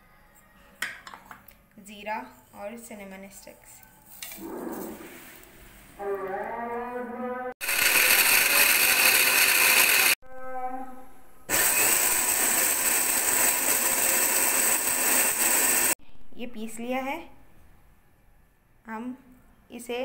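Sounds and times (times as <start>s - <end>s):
electric grinder grinding spices: 7.6s - 10.2s, 11.5s - 16.0s.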